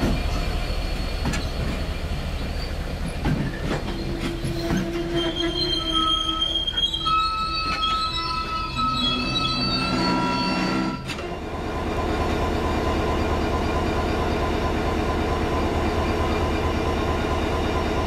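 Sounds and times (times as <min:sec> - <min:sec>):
diesel locomotive idling: 0:00.0 - 0:07.6, 0:09.0 - 0:18.0
train wheels squealing: 0:00.0 - 0:11.2.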